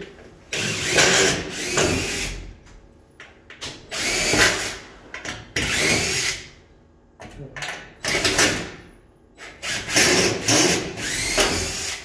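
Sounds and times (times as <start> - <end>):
power drill running: 0.5 - 2.4, 3.9 - 4.8, 5.6 - 6.5, 9.5 - 12.0.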